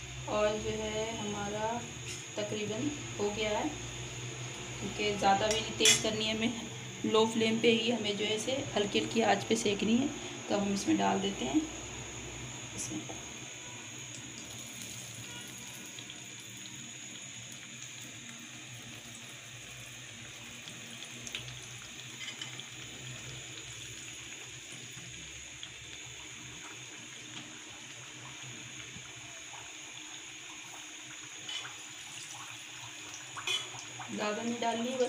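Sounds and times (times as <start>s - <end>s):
oil sizzling: 0.0s - 35.0s.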